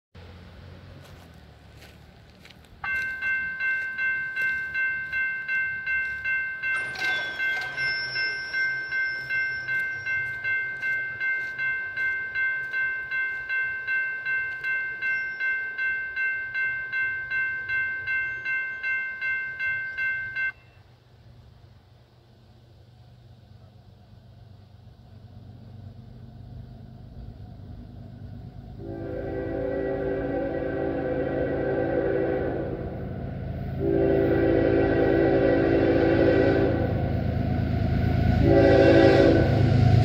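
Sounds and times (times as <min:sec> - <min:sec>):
railroad crossing bell ringing: 0:01.8 - 0:21.0, 0:28.8 - 0:37.7, 0:38.4 - 0:40.0.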